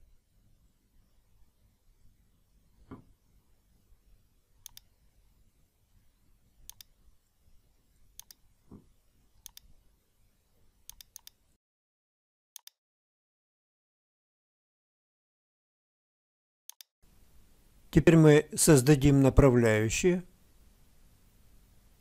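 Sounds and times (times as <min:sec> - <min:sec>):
mouse button clicking: 0:04.6 - 0:04.9, 0:06.7 - 0:06.9, 0:08.2 - 0:08.4, 0:09.4 - 0:09.7, 0:10.9 - 0:11.4.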